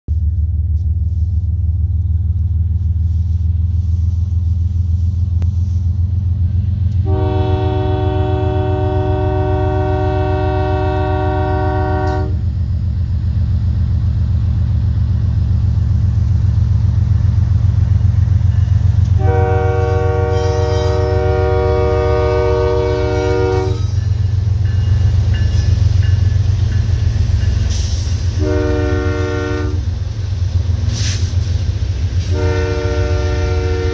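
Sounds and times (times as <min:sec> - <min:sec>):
diesel locomotives rumbling: 0:00.1 - 0:33.9
locomotive air horn blasts: 0:07.0 - 0:12.4, 0:19.1 - 0:24.1, 0:28.2 - 0:29.9, 0:32.2 - 0:33.9.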